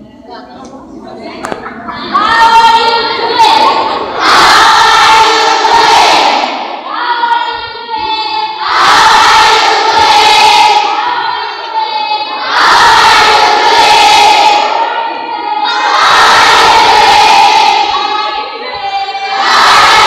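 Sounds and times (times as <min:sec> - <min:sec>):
students chanting together: 0:02.0 - 0:20.0.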